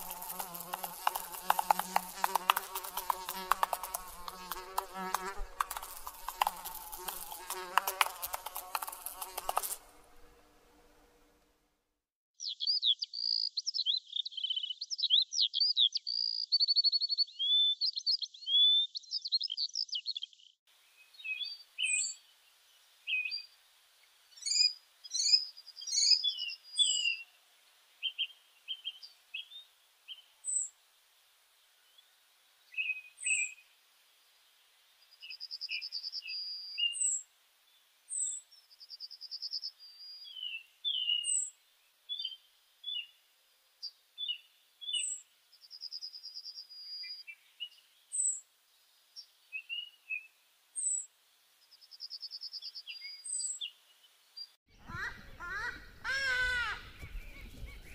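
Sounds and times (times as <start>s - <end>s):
buzzy bird trill: 0.0s - 9.9s
birds chirping and singing: 54.8s - 57.9s.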